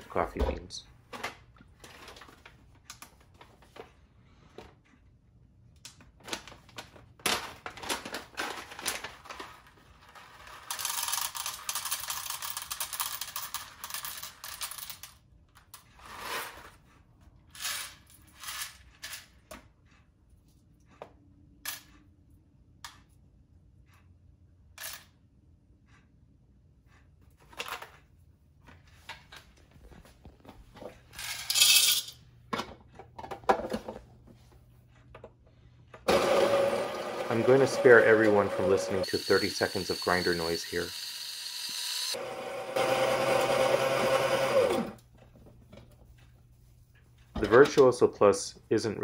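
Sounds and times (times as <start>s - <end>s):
coffee bag crinkling: 6.2s - 10.4s.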